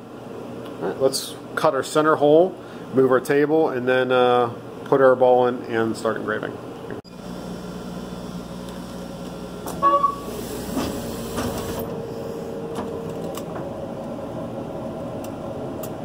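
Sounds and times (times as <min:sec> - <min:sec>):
laser cutter humming: 0:07.1 - 0:16.0.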